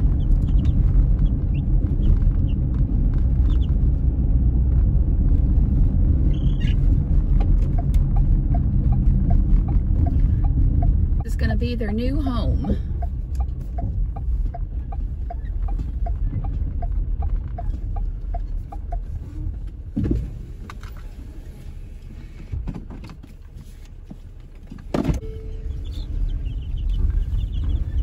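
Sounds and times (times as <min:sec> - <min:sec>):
chicks peeping: 0:00.0 - 0:02.6, 0:03.4 - 0:03.7, 0:06.3 - 0:06.8, 0:25.6 - 0:28.0
car interior road rumble: 0:00.0 - 0:28.0
regular ticking: 0:07.4 - 0:19.2.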